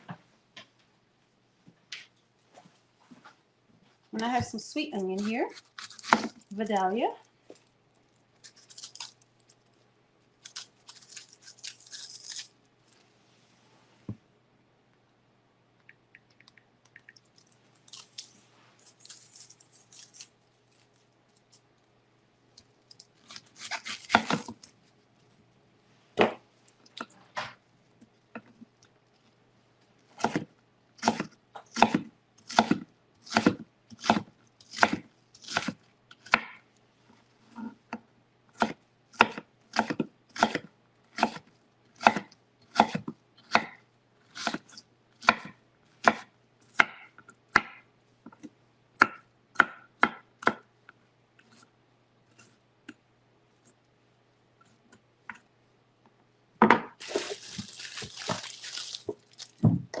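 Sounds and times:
knife chopping on wooden board: 0:23.6 - 0:24.6, 0:30.2 - 0:36.6, 0:38.6 - 0:41.4, 0:42.0 - 0:43.8, 0:44.4 - 0:47.8.

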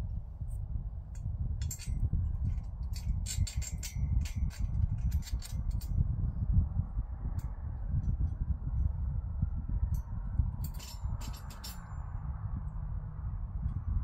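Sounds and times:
wind rumbling on microphone: 0:00.0 - 0:14.0
metal tubes clinking: 0:01.6 - 0:05.9, 0:10.6 - 0:11.9.

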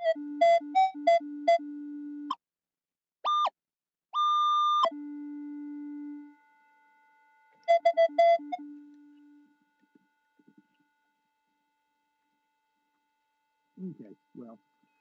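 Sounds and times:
metal detector low tones: 0:04.9 - 0:10.8
metal detector high tone: 0:07.6 - 0:09.5.

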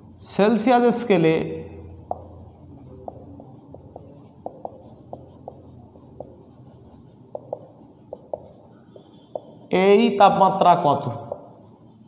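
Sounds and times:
low steady hum: 0:00.0 - 0:12.0
marker squeaking on whiteboard: 0:01.7 - 0:10.0, 0:11.0 - 0:12.0.

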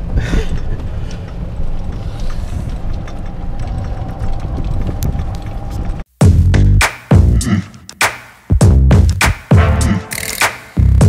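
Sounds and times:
golf cart wheels rumbling: 0:00.0 - 0:06.1
wind on microphone: 0:02.0 - 0:06.0.

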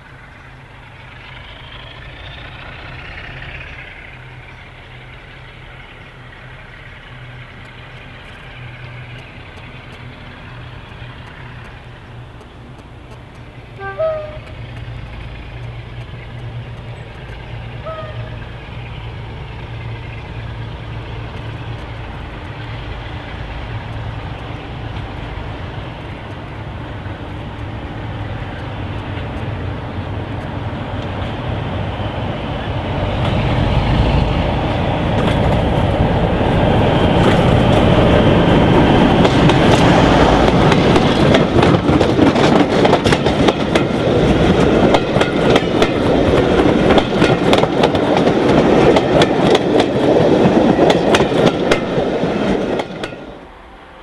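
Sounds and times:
wheels clicking over rail joints: 0:00.0 - 0:53.5
diesel locomotive engine: 0:00.0 - 0:54.0.

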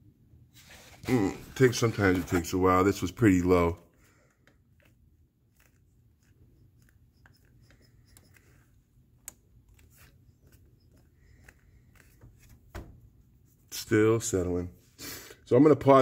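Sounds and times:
light rubbing: 0:04.5 - 0:14.1.

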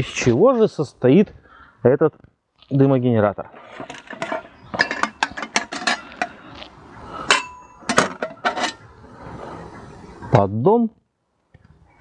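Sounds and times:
metal tubes knocking and clinking: 0:03.8 - 0:06.4
metallic ring: 0:07.2 - 0:08.8.

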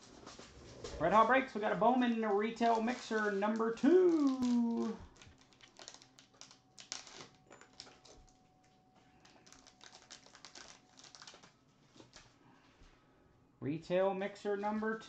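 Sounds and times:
card packs clicking and crinkling: 0:01.8 - 0:12.4.

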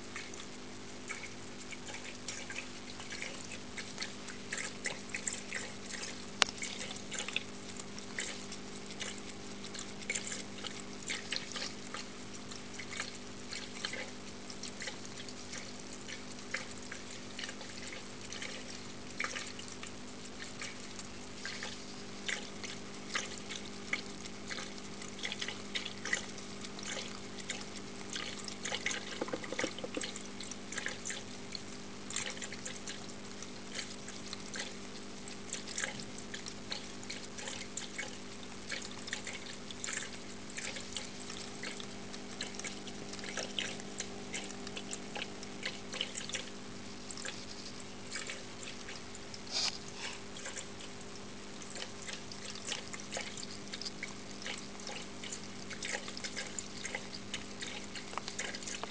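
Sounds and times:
cat lapping water: 0:00.0 - 0:58.9
water fountain pump humming: 0:00.0 - 0:58.9
water trickling: 0:00.0 - 0:58.9.

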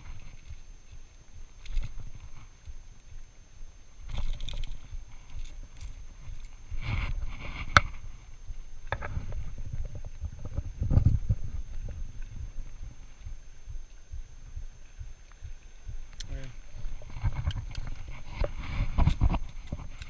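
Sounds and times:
rustling of palm fronds: 0:00.0 - 0:20.0.

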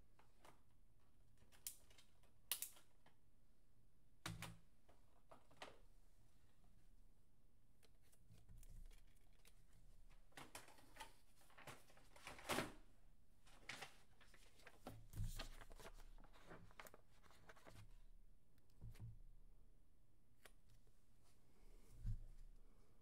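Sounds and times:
trading cards and paper rustling: 0:07.8 - 0:12.5, 0:13.5 - 0:18.0.

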